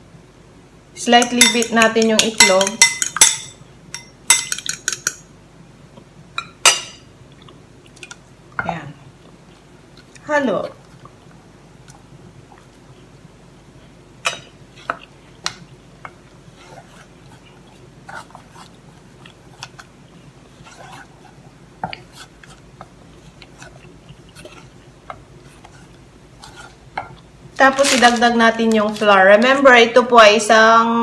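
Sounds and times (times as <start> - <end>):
wooden spoon stirring thick batter: 14.7 - 28.0.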